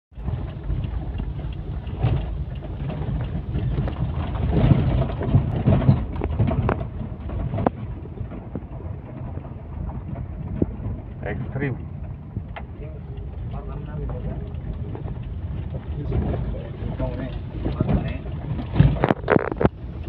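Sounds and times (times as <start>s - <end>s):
engine and tyres rumbling: 0.1s - 20.0s
vehicle body knocking and rattling: 0.1s - 20.0s.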